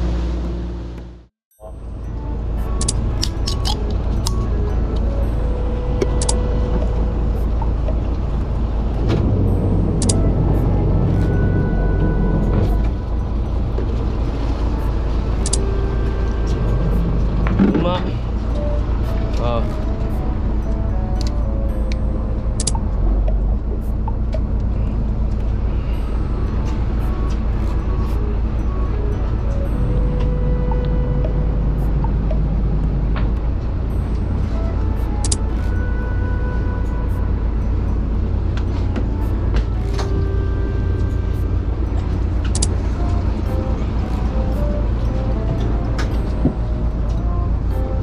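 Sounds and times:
boat engine rumbling: 0.0 - 48.0
sharp clicks: 22.6 - 23.4, 42.4 - 42.7.

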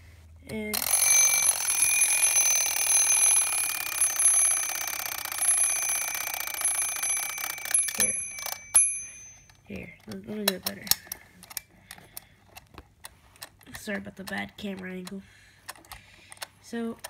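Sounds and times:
alarm clock clicks: 0.5 - 11.6
alarm clock bells ringing: 0.8 - 9.7.

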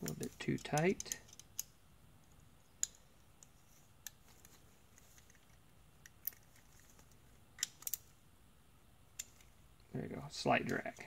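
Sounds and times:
metallic clicks and taps: 0.0 - 8.0.

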